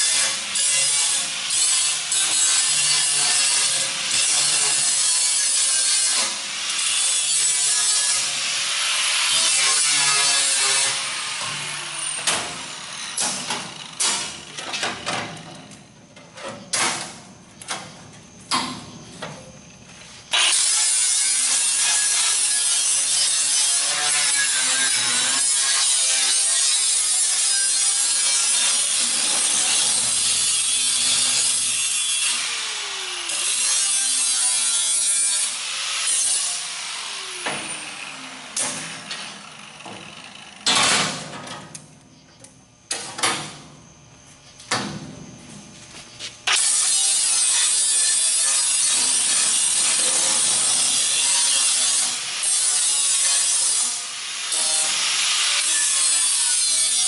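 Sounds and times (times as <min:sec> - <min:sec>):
angle grinder cutting steel: 0:00.0 - 0:14.5, 0:20.3 - 0:40.8, 0:46.4 - 0:57.0.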